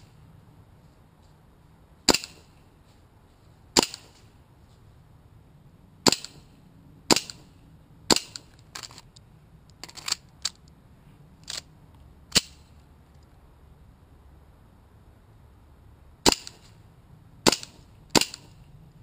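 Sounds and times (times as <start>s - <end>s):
airsoft pistol shots: 2.1s - 2.5s, 3.8s - 4.2s, 6.0s - 6.4s, 7.1s - 7.5s, 16.2s - 16.6s, 17.4s - 18.5s.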